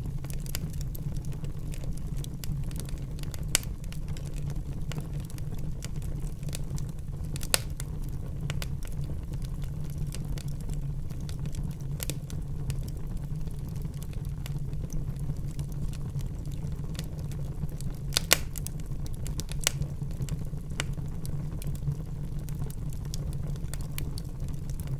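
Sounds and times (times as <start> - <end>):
grill fire crackling: 0.0 - 24.9
sharp fire pops: 1.8 - 10.5, 11.2 - 13.0, 18.0 - 21.9.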